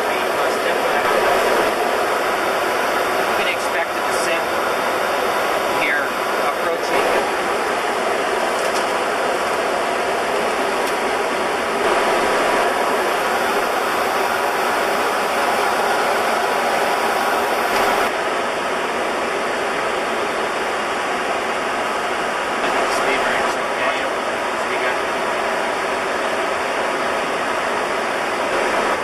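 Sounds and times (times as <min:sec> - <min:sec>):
cockpit airflow rushing: 0:10.4 - 0:18.1.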